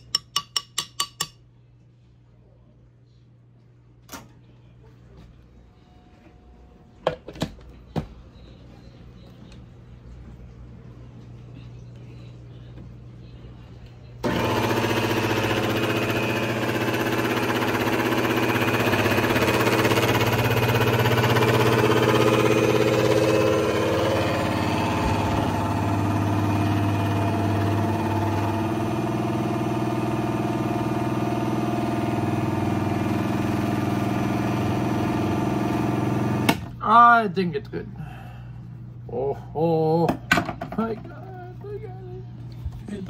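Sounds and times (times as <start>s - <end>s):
blender motor running: 14.2s - 36.6s.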